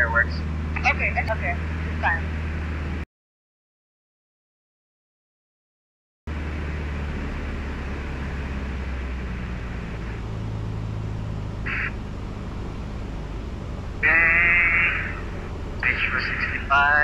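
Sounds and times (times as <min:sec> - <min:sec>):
aircraft engine and propeller droning: 0:00.0 - 0:03.0, 0:06.3 - 0:17.0
loud pitched sound: 0:06.3 - 0:17.0.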